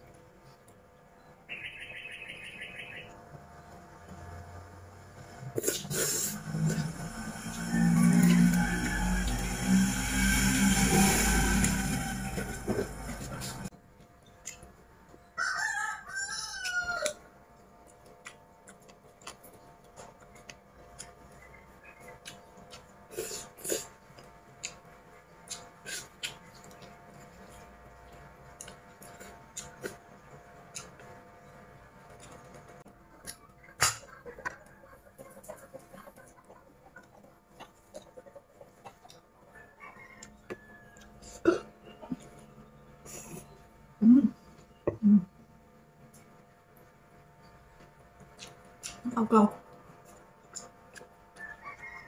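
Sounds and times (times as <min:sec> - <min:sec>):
rooster crowing: 0:06.4 - 0:13.7, 0:15.4 - 0:17.3, 0:39.5 - 0:41.4, 0:51.4 - 0:52.0
chewing: 0:16.6 - 0:31.2, 0:32.0 - 0:39.4, 0:47.8 - 0:49.1, 0:50.0 - 0:52.0.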